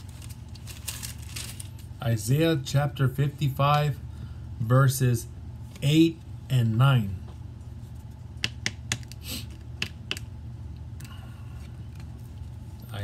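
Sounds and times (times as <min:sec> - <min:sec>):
paper rustle: 0:00.0 - 0:01.9.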